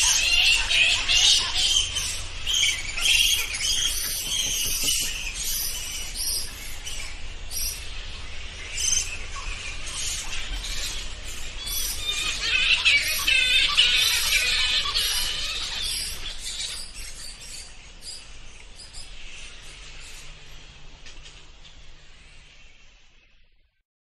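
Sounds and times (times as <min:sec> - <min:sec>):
bats squeaking: 0:00.0 - 0:19.2.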